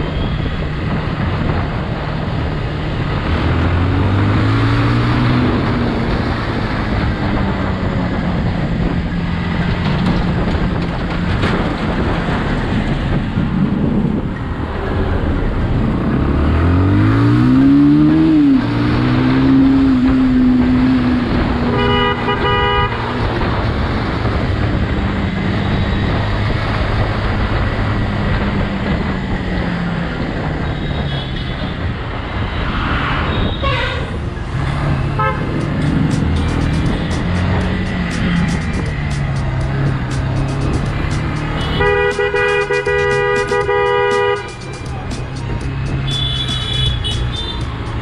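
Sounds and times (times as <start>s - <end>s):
wind rush on microphone: 0.0s - 17.5s, 18.3s - 42.4s
vehicle horn honking: 21.7s - 23.1s, 35.2s - 35.7s, 41.4s - 44.8s, 46.0s - 47.7s
brief traffic horns: 41.5s - 44.6s, 46.0s - 47.7s.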